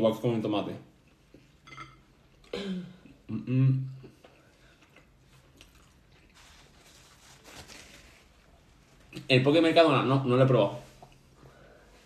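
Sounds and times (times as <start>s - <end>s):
closed-mouth voice sounds: 2.7s - 4.1s
people chewing: 3.9s - 7.1s.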